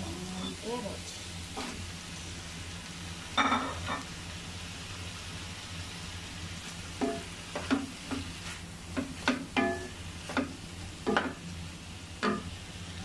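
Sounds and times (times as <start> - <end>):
food sizzling in a frying pan: 0.0 - 13.0
spatula knocking on a pan: 7.0 - 8.3, 8.9 - 11.4, 12.2 - 12.5.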